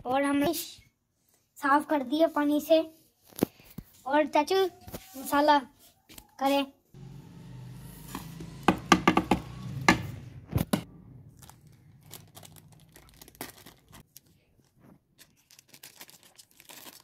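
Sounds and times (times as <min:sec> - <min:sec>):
foil sachet crinkling and tearing: 0:11.3 - 0:14.4, 0:15.2 - 0:17.0.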